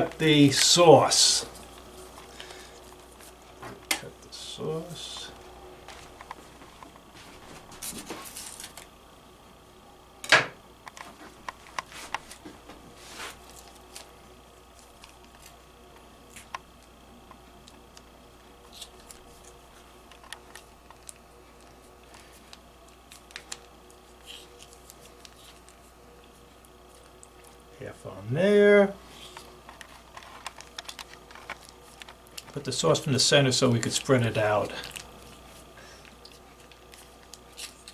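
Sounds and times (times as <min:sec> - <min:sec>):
plastic pouch clicks and crinkles: 0:20.1 - 0:25.8, 0:29.4 - 0:32.8.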